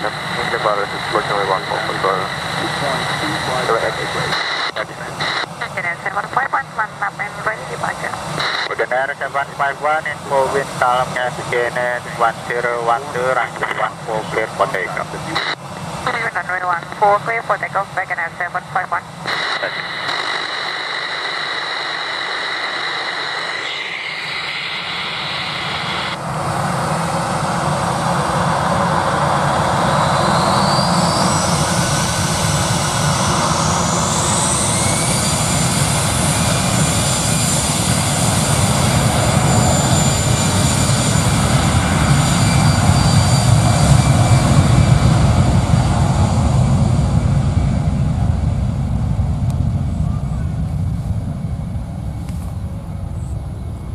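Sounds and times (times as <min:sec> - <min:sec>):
rising engine whine: 0:00.0 - 0:05.8, 0:19.0 - 0:53.9
jet engines spooling up: 0:00.0 - 0:16.2, 0:17.9 - 0:53.9.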